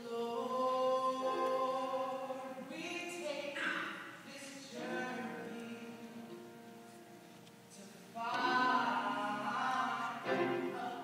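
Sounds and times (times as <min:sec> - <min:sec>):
group of singers: 0:00.0 - 0:02.8, 0:04.3 - 0:06.4, 0:07.7 - 0:11.0.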